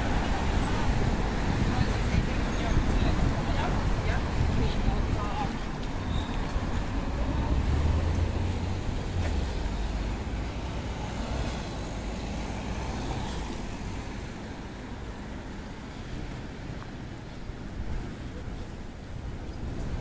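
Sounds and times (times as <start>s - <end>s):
steady traffic noise: 0.0s - 20.0s
vehicle engine rumble: 0.0s - 20.0s.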